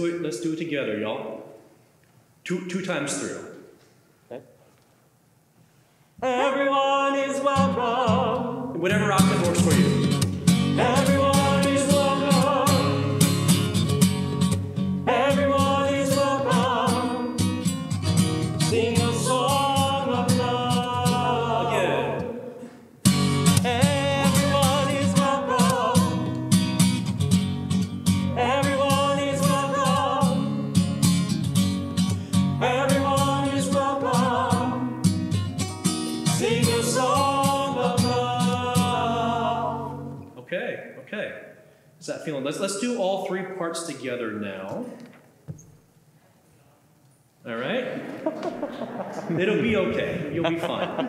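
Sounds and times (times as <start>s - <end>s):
strummed acoustic guitar: 7.5s - 22.4s, 23.0s - 40.2s
congregation singing in parts: 10.7s - 13.4s, 15.0s - 17.7s, 18.6s - 22.9s, 23.6s - 26.4s, 28.3s - 30.5s, 32.6s - 35.2s, 36.3s - 40.2s.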